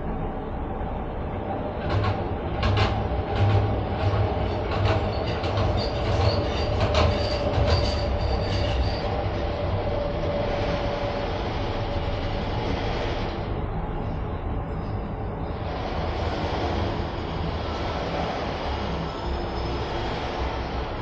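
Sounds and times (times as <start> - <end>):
constant rumble: 0.0 - 21.0
steady whine: 0.0 - 21.0
cable car clattering over rollers: 1.6 - 10.6
high squeal: 5.0 - 11.1, 18.7 - 21.0.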